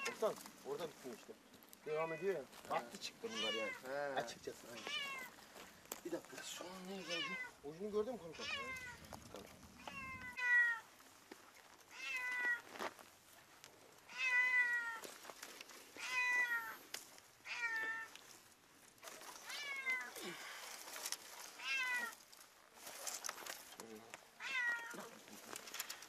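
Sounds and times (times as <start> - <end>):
kitten meowing: 3.2 - 3.9, 4.8 - 5.3, 7.0 - 7.6, 8.3 - 9.0, 9.7 - 10.9, 11.9 - 12.6, 14.1 - 15.0, 16.0 - 16.8, 21.6 - 22.2, 24.4 - 25.1.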